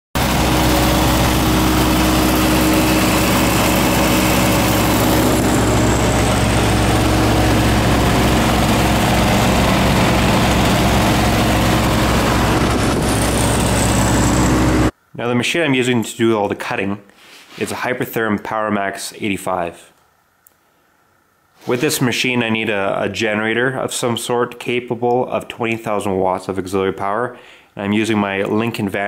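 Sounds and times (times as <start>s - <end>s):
diesel engine running steadily: 0.2s - 14.9s.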